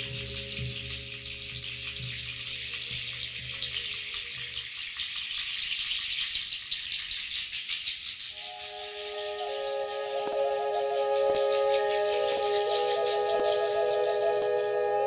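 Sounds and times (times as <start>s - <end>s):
shaken rattle: 0.0s - 14.8s
long held tones: 8.4s - 15.0s
low drone: 8.4s - 15.0s.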